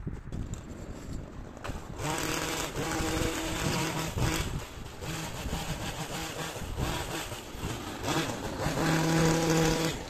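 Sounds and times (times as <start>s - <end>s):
wind on microphone: 0.0s - 10.0s.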